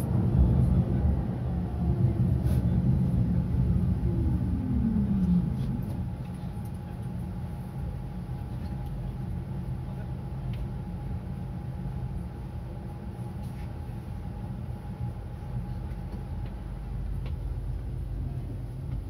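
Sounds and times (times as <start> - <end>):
falling whine: 0.0 - 8.8
faint steady hum: 0.0 - 19.0
tram running noise: 0.0 - 19.0.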